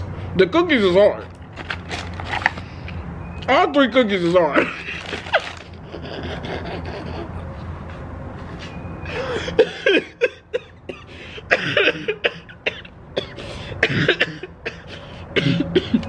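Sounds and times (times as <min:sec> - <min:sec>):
man coughing: 0:09.4 - 0:16.0.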